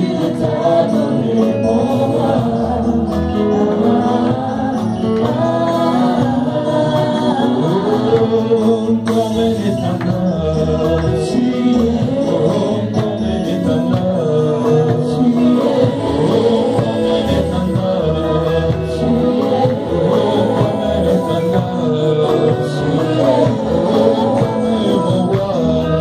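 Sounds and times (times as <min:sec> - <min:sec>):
woman singing into microphone: 0:00.0 - 0:09.6, 0:10.8 - 0:26.0
instrumental accompaniment: 0:00.0 - 0:26.0.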